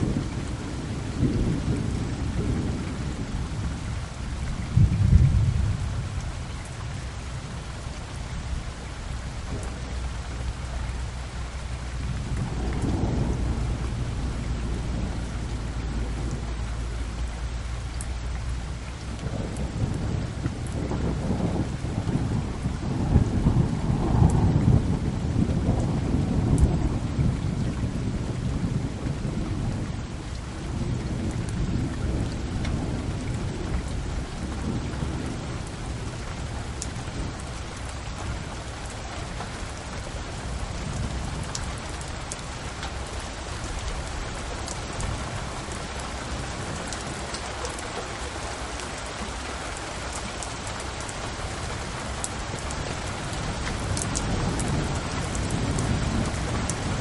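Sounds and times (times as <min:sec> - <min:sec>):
low rumble: 0:09.4 - 0:27.2.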